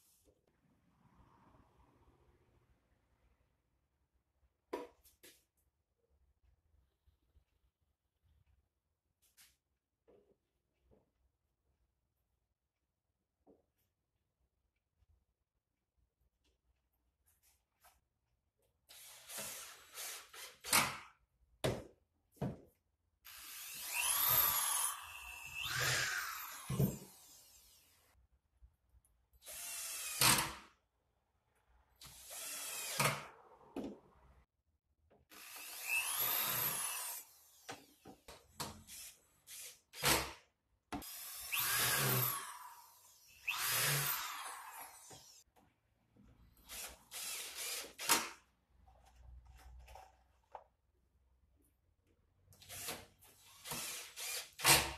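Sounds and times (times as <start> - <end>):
cordless drill driving screws: 23.3 - 28.0, 29.4 - 30.7, 32.0 - 33.3, 35.3 - 38.0, 38.9 - 40.3, 41.0 - 45.4, 46.6 - 48.4, 52.6 - 54.9.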